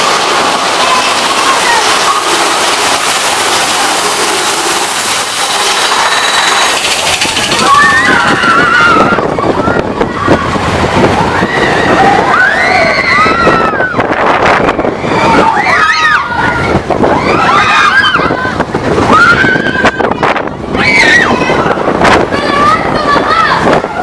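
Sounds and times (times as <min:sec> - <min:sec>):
cars clattering on track: 0:00.0 - 0:08.4
riders screaming and cheering: 0:00.0 - 0:24.0
roller coaster rushing: 0:00.0 - 0:24.0.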